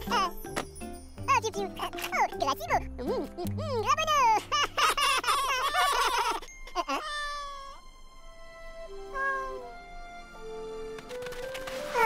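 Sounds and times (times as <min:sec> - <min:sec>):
high-pitched cartoon giggling: 0:02.7 - 0:07.4.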